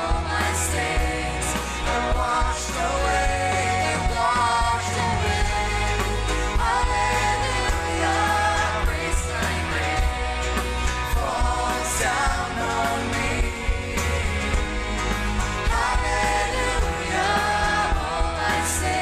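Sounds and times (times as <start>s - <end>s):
woman singing: 0.0s - 10.6s
worship band playing: 0.0s - 19.0s.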